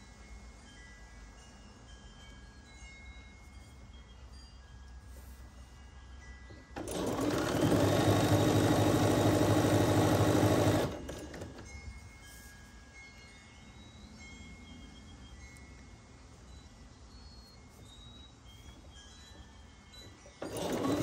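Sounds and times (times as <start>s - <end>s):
sewing machine stitching: 6.8s - 11.6s, 20.4s - 21.0s.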